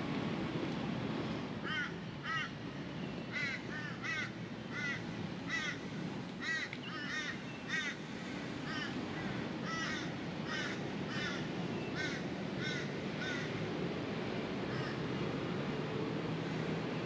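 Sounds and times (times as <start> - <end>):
crow cawing: 1.6 - 2.5, 3.3 - 5.8, 6.4 - 8.0, 8.7 - 11.4, 12.0 - 13.5.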